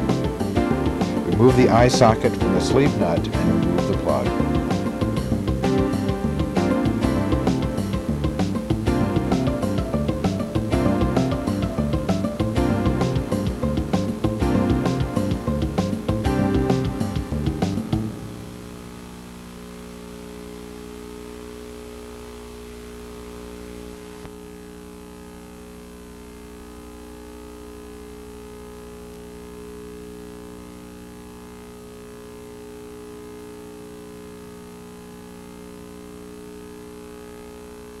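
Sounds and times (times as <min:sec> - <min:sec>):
steady electrical hum: 0:00.0 - 0:38.0.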